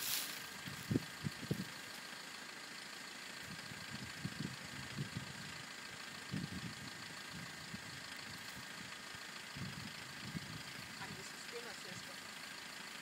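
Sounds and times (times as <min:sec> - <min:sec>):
wind buffeting microphone: 0:00.6 - 0:01.7, 0:09.5 - 0:10.8.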